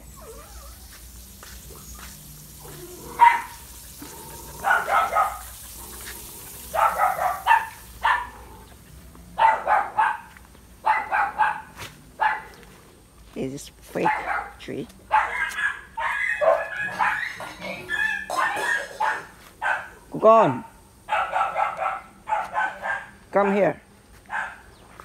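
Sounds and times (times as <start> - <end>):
dog barking: 3.1 - 3.6, 4.6 - 5.5, 6.7 - 8.4, 9.4 - 12.6, 14.0 - 20.0, 20.6 - 23.2, 24.3 - 24.7.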